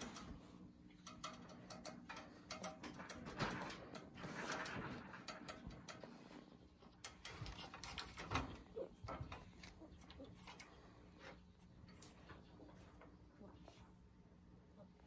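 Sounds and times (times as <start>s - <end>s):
wire pet cage rattling: 0.0s - 10.8s.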